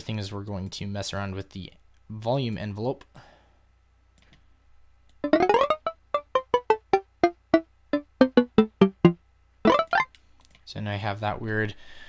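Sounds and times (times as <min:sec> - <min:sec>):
bell-like synth notes: 0:08.3 - 0:10.0.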